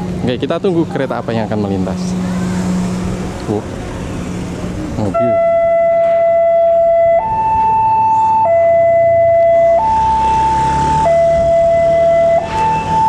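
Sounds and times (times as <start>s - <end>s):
two-tone level crossing alarm: 5.2s - 13.0s.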